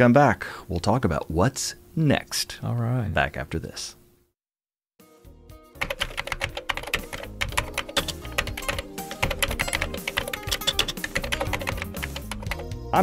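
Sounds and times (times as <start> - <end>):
background music: 5.0 - 13.0
keyboard typing clicks: 5.8 - 12.7.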